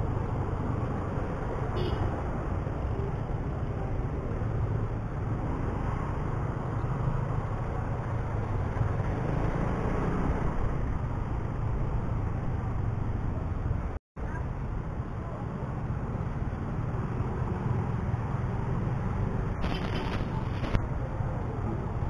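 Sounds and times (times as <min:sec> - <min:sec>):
traffic noise: 0:00.0 - 0:22.0
wind: 0:00.0 - 0:22.0.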